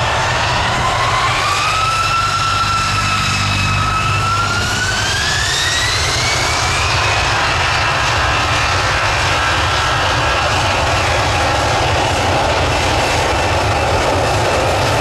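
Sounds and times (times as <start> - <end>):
jet engine rushing: 0.0 - 15.0
jet engine whine: 0.0 - 15.0.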